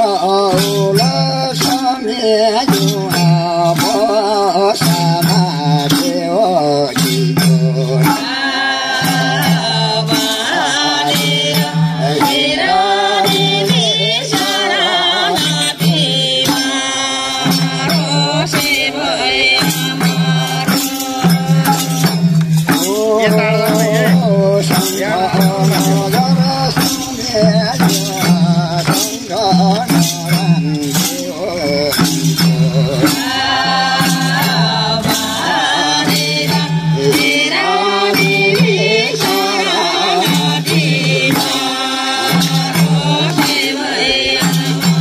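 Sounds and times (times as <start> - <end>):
hand drums: 0.0 - 45.0
voices singing with vibrato: 0.0 - 45.0.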